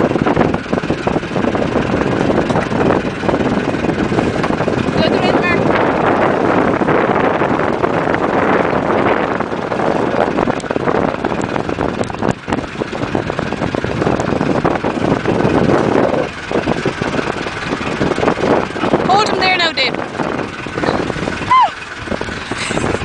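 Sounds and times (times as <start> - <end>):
boat engine running: 0.0 - 23.0.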